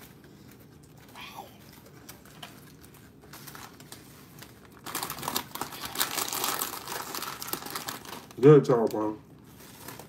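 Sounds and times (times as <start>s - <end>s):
aluminium foil crinkling: 0.0s - 10.0s.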